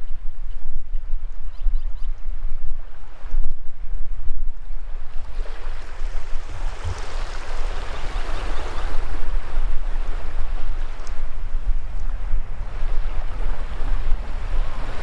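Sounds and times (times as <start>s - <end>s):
wind rumble on microphone: 0.0s - 15.0s
surf washing over sand: 4.7s - 15.0s.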